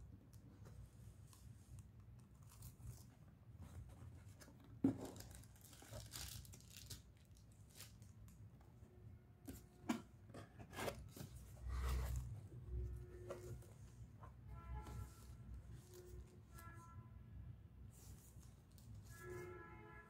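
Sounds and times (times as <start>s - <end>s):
cardboard box handling: 9.6s - 12.4s.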